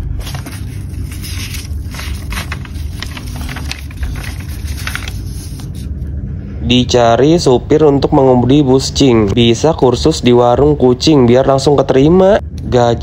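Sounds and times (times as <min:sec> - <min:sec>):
paper rustling and crackling: 0:00.0 - 0:05.9
steady low rumble: 0:00.0 - 0:13.0.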